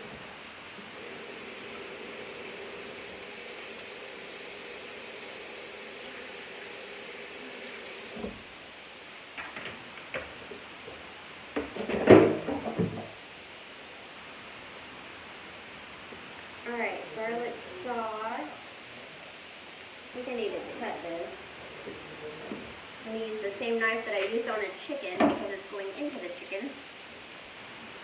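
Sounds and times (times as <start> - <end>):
faucet water running: 0.8 - 8.5.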